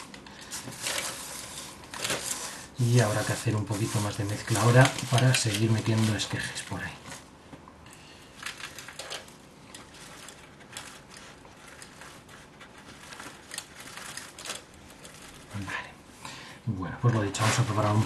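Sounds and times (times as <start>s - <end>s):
gritty crunching of potting soil: 0.4s - 7.3s, 17.0s - 18.0s.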